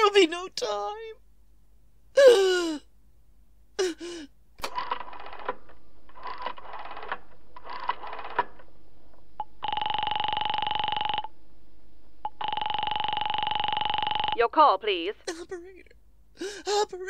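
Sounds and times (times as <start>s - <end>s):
buzzing telephone ring tone: 9.4s - 11.3s, 12.2s - 14.5s.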